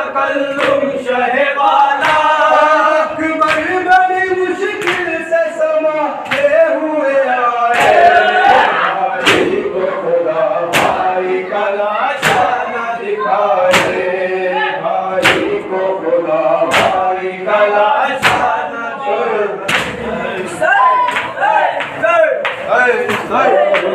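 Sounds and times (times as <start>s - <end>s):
men chanting in unison: 0.0s - 23.9s
hands slapping chests: 4.8s - 5.1s, 9.2s - 9.6s, 19.7s - 20.0s, 21.1s - 23.9s.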